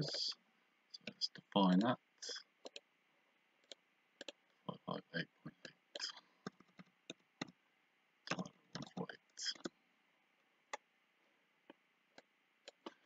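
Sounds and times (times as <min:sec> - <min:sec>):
computer mouse clicks: 0:02.6 - 0:02.8.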